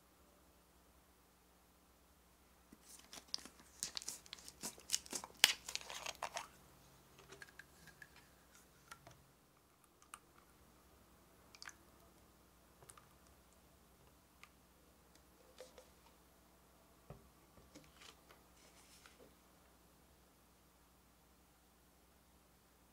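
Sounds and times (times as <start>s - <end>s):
plastic bottle crinkling: 2.8s - 6.6s.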